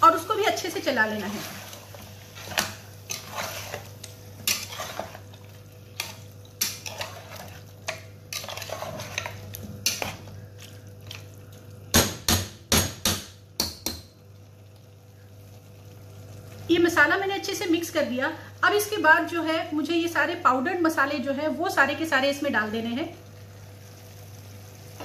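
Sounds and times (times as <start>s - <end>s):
spatula scraping a pot: 1.0s - 10.3s.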